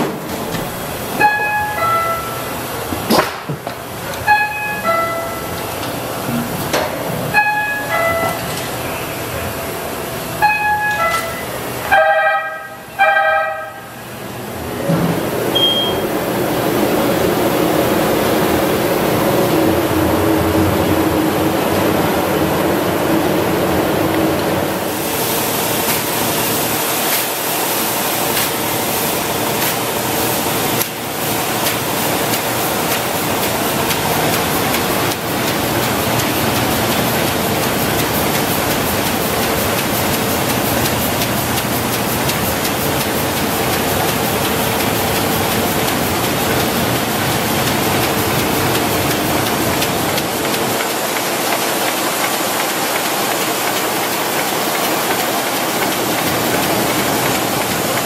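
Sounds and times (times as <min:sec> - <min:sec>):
printing press clatter and hiss: 0:00.0 - 0:12.9, 0:13.9 - 0:58.0.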